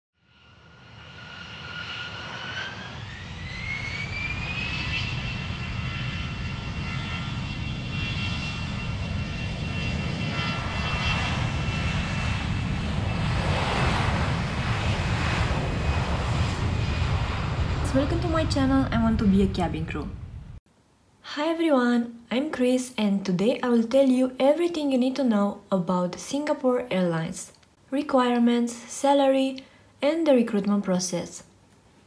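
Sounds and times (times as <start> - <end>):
jet engine low rumble: 0.2 - 20.6
jet engine whine: 0.2 - 20.6.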